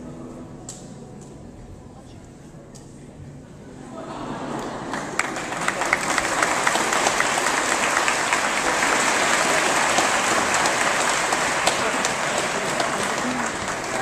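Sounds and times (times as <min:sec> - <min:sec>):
large audience applauding: 0:04.4 - 0:14.0
close sharp claps: 0:04.6 - 0:14.0.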